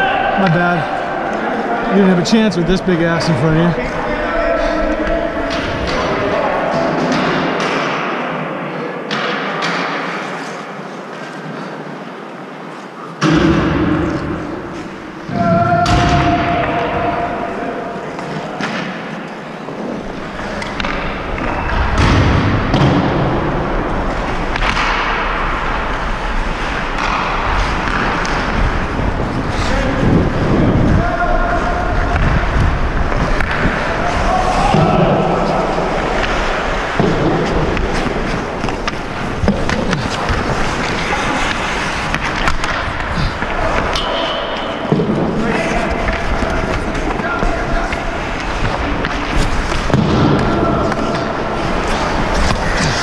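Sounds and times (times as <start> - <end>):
hockey sticks and puck clacking: 0.0 - 53.0
wind rumble on microphone: 28.4 - 34.2
skate blades scraping ice: 35.3 - 50.1, 50.9 - 53.0
sticks clicking on puck: 35.4 - 45.1.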